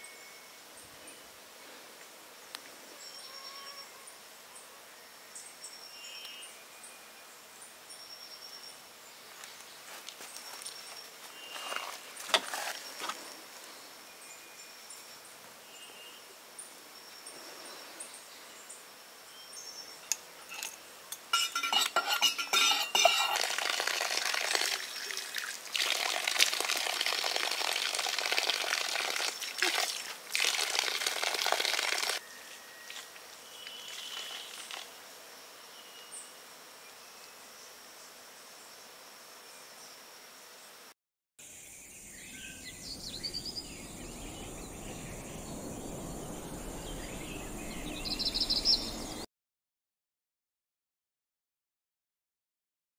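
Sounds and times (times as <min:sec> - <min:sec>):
insects buzzing: 0:00.0 - 0:49.2
metal thermos clinking: 0:20.5 - 0:23.6
liquid pouring: 0:21.4 - 0:32.2.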